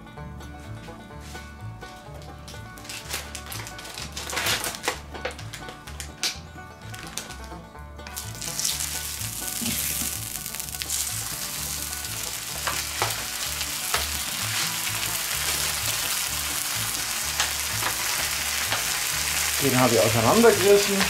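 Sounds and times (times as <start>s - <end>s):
fat popping: 2.2s - 19.6s
bacon sizzling: 8.1s - 21.0s.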